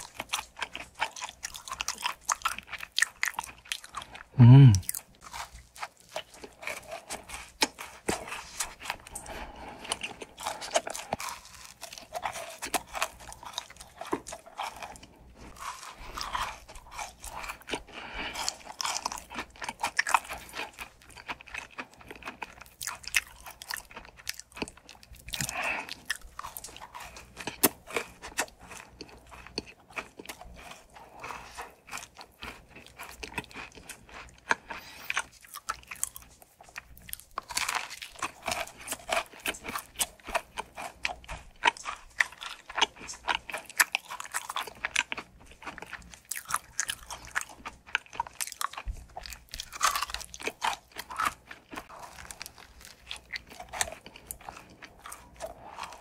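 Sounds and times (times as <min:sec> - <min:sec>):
crunching fried food: 0:00.0 - 0:56.0
wet chewing: 0:00.0 - 0:56.0.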